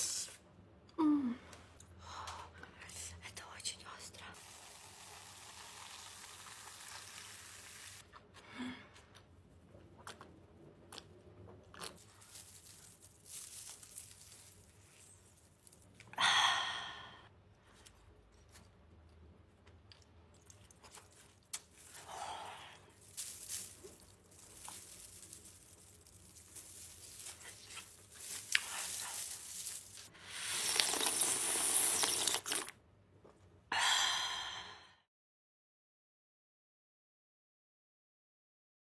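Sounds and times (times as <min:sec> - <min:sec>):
person sighing ahh: 0:01.0 - 0:01.5, 0:33.7 - 0:35.0
crunching and chewing: 0:09.0 - 0:16.1, 0:17.7 - 0:22.1, 0:22.8 - 0:32.7
crunching bites of fried food: 0:23.3 - 0:32.7
slurping broth: 0:30.2 - 0:32.7
gulping cola: 0:30.4 - 0:32.7.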